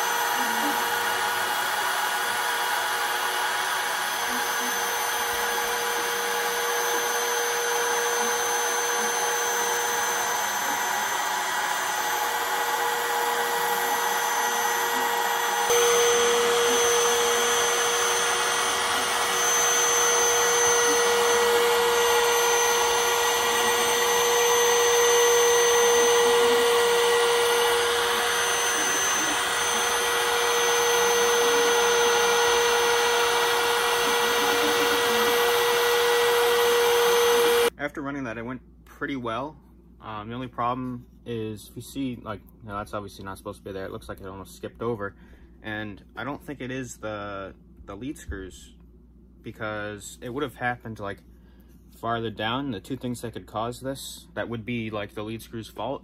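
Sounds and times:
router spindle cutting wood: 0:00.0 - 0:37.7.

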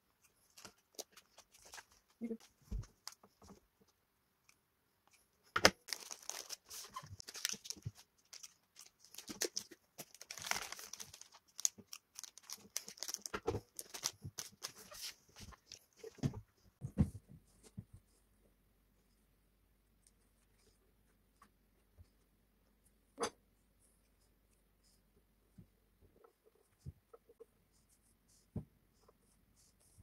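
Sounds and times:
plastic wrappers crinkling: 0:05.8 - 0:16.0.

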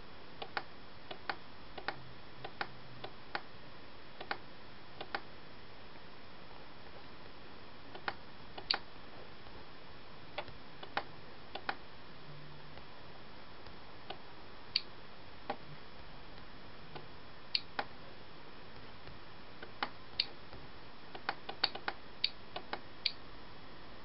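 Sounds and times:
steady background hiss: 0:00.0 - 0:24.0
computer mouse clicking: 0:00.4 - 0:03.5, 0:04.2 - 0:04.4, 0:05.0 - 0:05.3, 0:07.9 - 0:08.8, 0:10.4 - 0:11.8, 0:19.6 - 0:20.4, 0:21.1 - 0:22.8.

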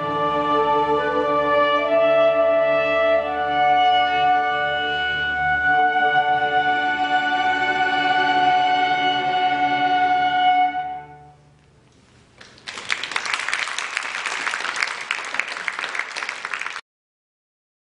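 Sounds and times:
string and woodwind ensemble chord: 0:00.0 - 0:11.4
audience applauding: 0:12.4 - 0:16.8.

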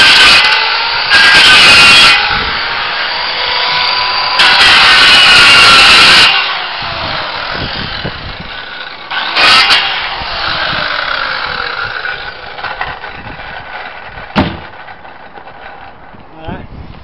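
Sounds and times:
power saw cutting wood: 0:00.0 - 0:16.1
sharp knock: 0:14.3 - 0:14.8.

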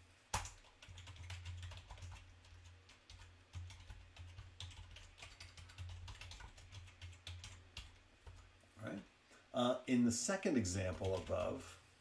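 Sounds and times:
keyboard typing: 0:00.3 - 0:08.5, 0:10.9 - 0:11.5.

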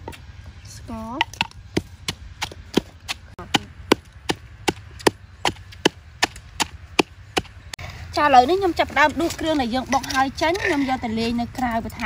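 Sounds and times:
wooden pestle pounding in mortar: 0:01.2 - 0:07.5.

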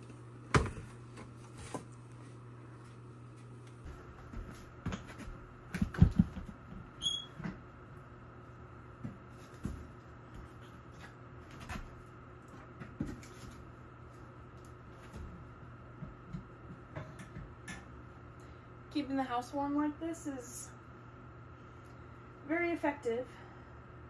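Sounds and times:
wood stove knocks and clatter: 0:04.8 - 0:06.8
short squeak: 0:07.0 - 0:07.4.

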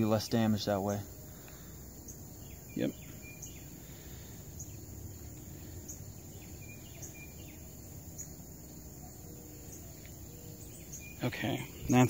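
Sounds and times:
high insect drone: 0:00.0 - 0:12.0
faint high peeps: 0:02.7 - 0:03.8, 0:09.0 - 0:12.0.

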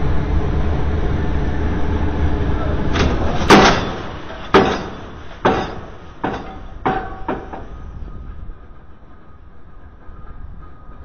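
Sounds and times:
faint machine hum: 0:00.0 - 0:11.0
pile driver metallic clangs: 0:02.9 - 0:07.8.

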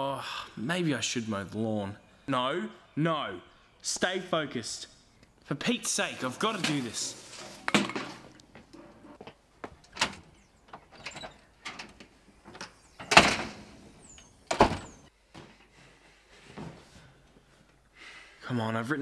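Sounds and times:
door clicks and rattles: 0:09.8 - 0:13.7, 0:14.5 - 0:15.0
door banging shut: 0:09.9 - 0:15.1.

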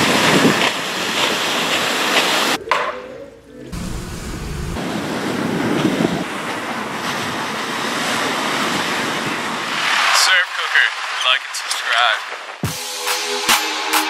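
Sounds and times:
ocean surf breaking: 0:00.0 - 0:02.6, 0:03.7 - 0:12.6
wind rumbling on microphone: 0:03.7 - 0:09.8.

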